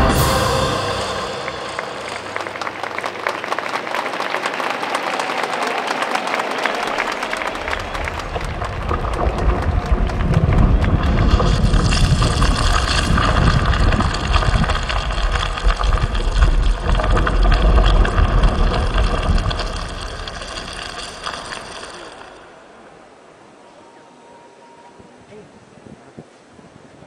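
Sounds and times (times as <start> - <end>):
deep rumbling sound effect: 0.0 - 3.2, 7.4 - 22.5
faint ringing tones: 22.9 - 25.3.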